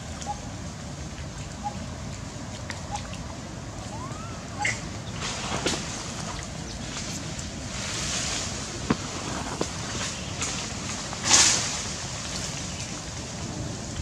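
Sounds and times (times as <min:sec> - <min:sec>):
wind buffeting microphone: 0:03.4 - 0:14.0.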